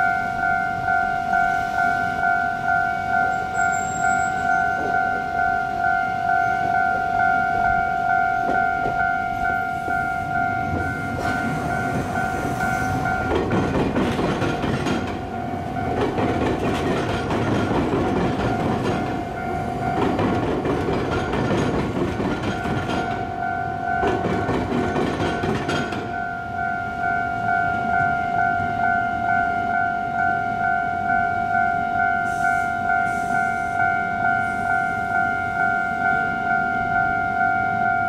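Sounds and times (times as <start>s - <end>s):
level-crossing warning bell ringing: 0.0s - 38.0s
train wheels rumbling and clattering: 8.4s - 26.4s.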